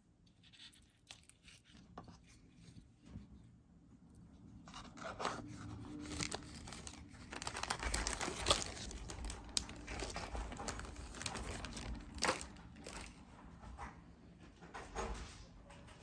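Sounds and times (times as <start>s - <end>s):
packaging crinkling: 4.7s - 13.2s.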